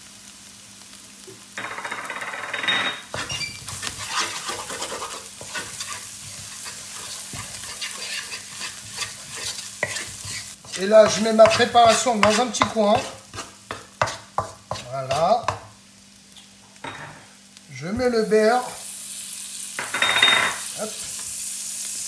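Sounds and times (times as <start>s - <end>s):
food sizzling in a wok: 0.0s - 22.0s
wooden spatula scraping a pan: 3.1s - 15.6s.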